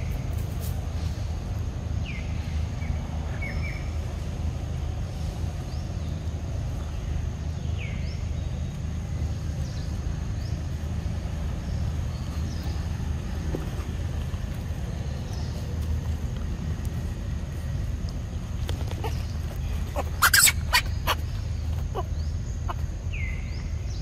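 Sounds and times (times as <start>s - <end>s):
steady low rumble: 0.0s - 24.0s
high bird chirps: 19.0s - 24.0s
falling bird whistle: 20.2s - 21.2s.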